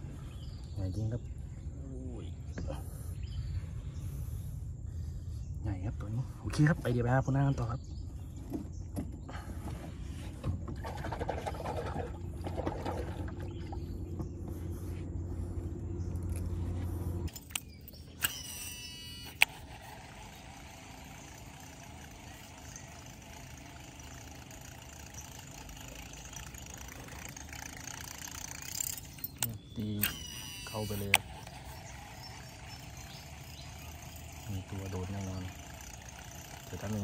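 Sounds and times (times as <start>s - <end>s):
steady low rumble: 0.0s - 8.9s, 11.8s - 18.2s
fishing reel spool whirring: 11.1s - 37.0s
sharp reel click: 17.3s - 37.0s.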